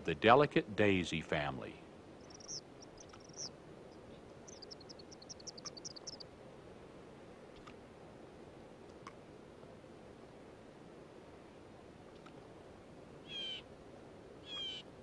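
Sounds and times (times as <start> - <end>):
steady hiss: 0.0 - 11.9
high-pitched bird chirps: 2.2 - 3.5, 4.5 - 6.2.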